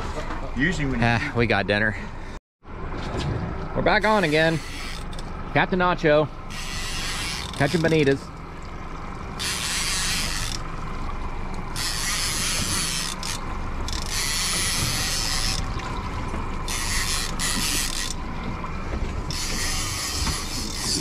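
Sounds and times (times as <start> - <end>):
fishing reel ratcheting: 4.2 - 5.3, 6.5 - 8.2, 9.4 - 10.7, 11.7 - 15.7, 16.7 - 18.2, 19.3 - 21.0.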